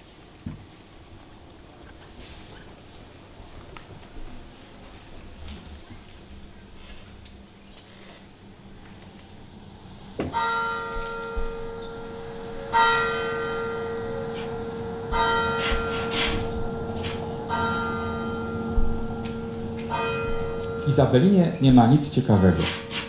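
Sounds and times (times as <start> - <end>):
church bell tolling: 10.3 - 23.0.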